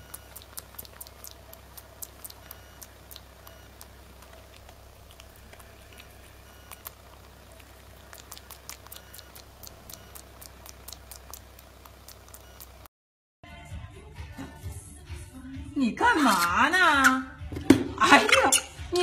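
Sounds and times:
small sharp clicks of grooming: 0.0 - 12.9
steady low hum: 0.0 - 12.9.

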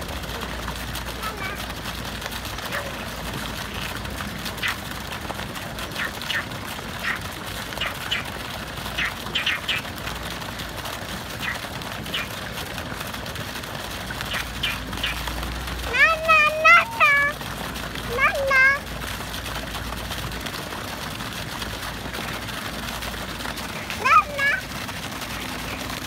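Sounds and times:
frogs croaking: 11.4 - 12.3.

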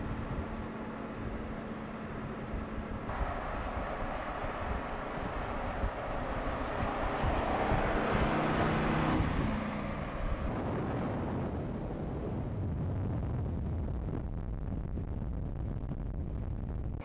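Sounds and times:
car engine driving by: 0.0 - 11.8.

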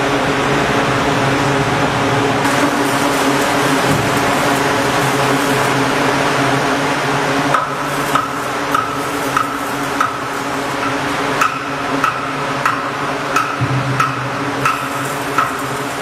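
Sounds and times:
machine hum and hiss: 0.0 - 16.0
hammer striking steel: 7.5 - 16.0.

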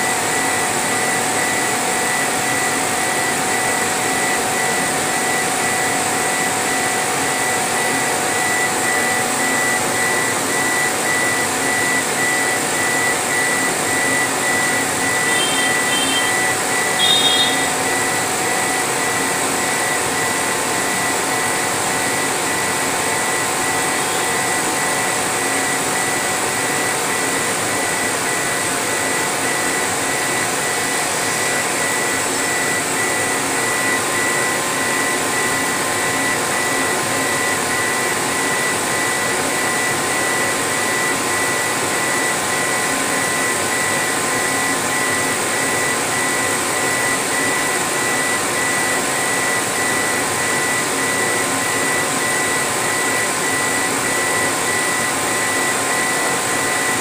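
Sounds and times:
laser engraver rushing noise: 0.0 - 57.0
faint pulsing high tone: 10.7 - 18.8, 23.3 - 25.1.

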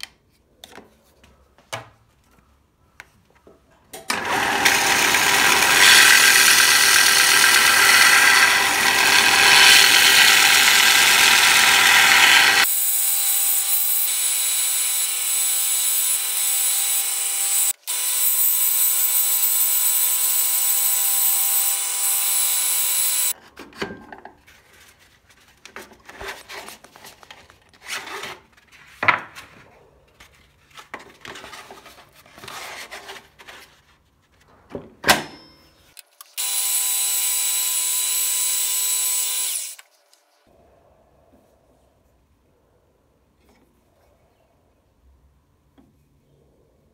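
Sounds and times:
belt sander grinding: 4.1 - 23.3, 36.4 - 39.8.

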